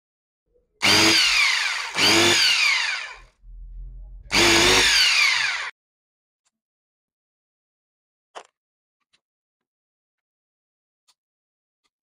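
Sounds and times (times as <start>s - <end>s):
low hum: 0.6s - 5.7s
angle grinder motor whining: 0.8s - 3.4s, 4.3s - 5.7s.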